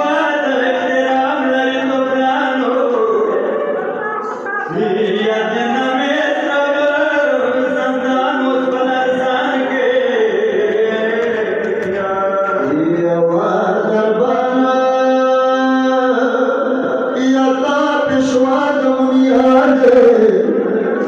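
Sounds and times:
person chanting a lament: 0.0 - 21.0.

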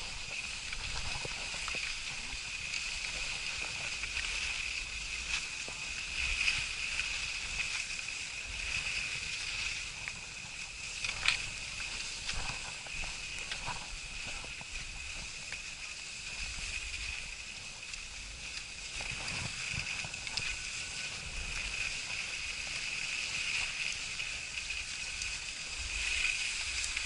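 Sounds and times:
skis sliding over packed snow: 0.0 - 27.0.

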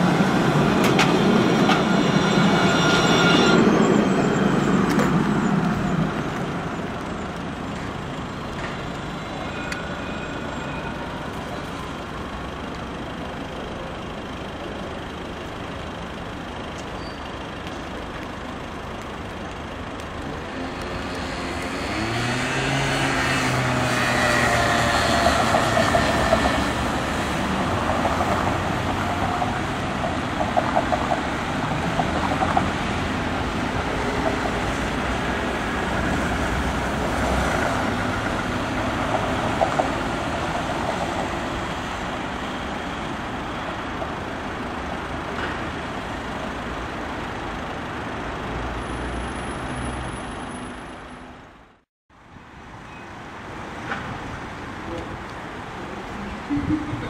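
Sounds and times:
cars driving past: 19.8 - 51.7.

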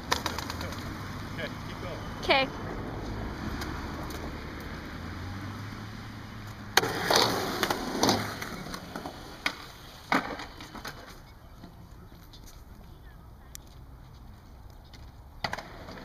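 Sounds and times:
skateboard wheels clacking: 0.0 - 1.0, 6.5 - 12.5, 14.8 - 16.0
skateboard wheels rolling on concrete: 0.0 - 16.0
skateboard knocking: 6.7 - 11.8, 15.0 - 16.0.

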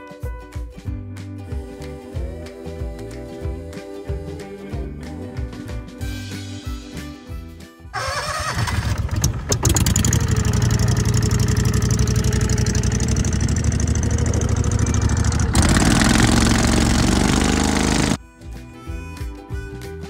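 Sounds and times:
background music: 0.0 - 8.9, 18.2 - 20.0
boat engine running: 8.9 - 18.2
engine knocks: 8.9 - 18.2.

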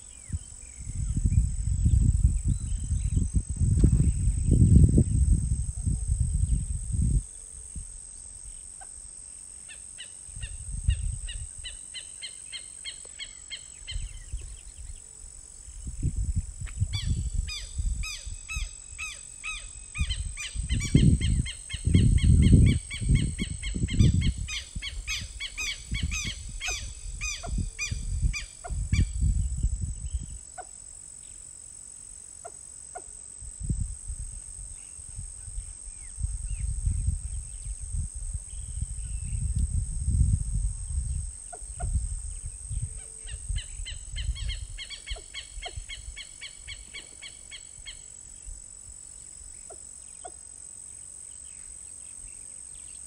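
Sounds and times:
high insect whine: 0.0 - 53.0
rapid bird chirps: 17.0 - 28.8.

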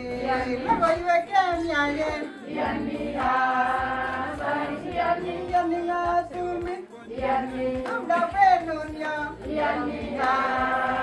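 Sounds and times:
women's choir singing: 0.1 - 0.8, 2.2 - 5.8, 7.1 - 8.0, 9.4 - 11.0.

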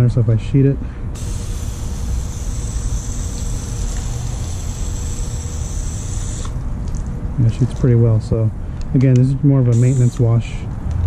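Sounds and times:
hose water spraying on car: 1.2 - 6.6.

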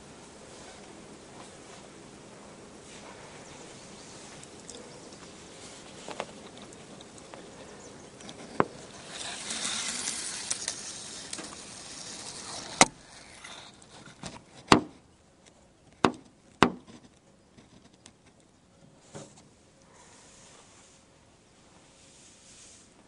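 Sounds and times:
rush of handling noise: 8.3 - 14.7.

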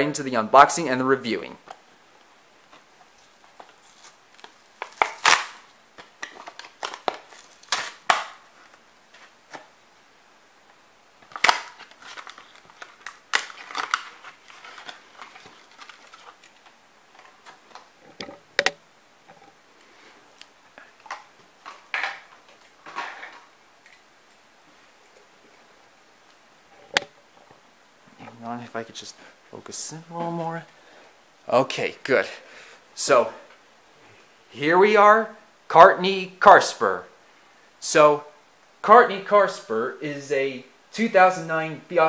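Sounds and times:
plastic packaging crackling and snapping: 2.6 - 9.7, 11.2 - 18.8.

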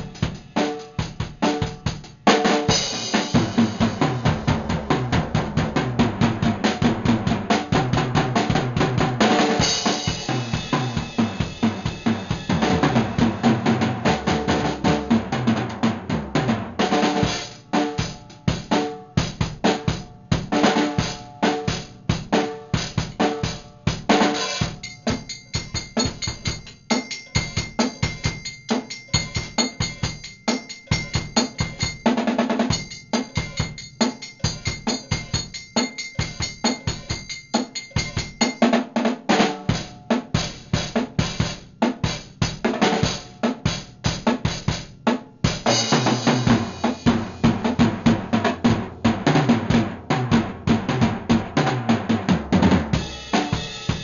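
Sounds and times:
drum kit playing: 0.0 - 54.0
steady high ring: 24.6 - 38.8.

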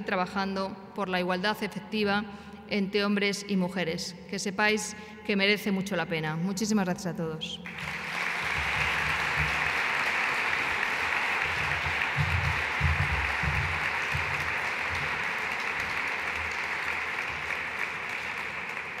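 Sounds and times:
audience applauding: 7.6 - 19.0.

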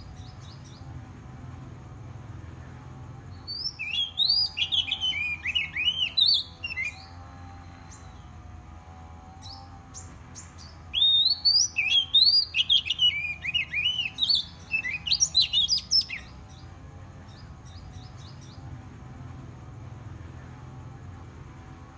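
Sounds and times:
bird singing whistled notes: 3.4 - 7.2, 9.4 - 16.6.

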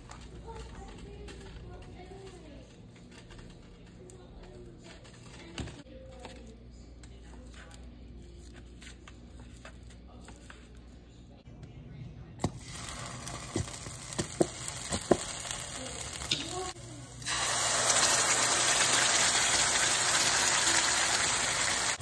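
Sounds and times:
food sizzling in a frying pan: 12.4 - 22.0
sauce poured into hot pan: 17.2 - 22.0.

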